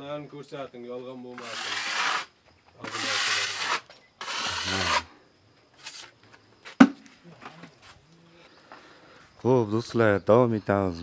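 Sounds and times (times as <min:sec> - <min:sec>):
hand tool scraping hard surface: 0:01.4 - 0:05.1.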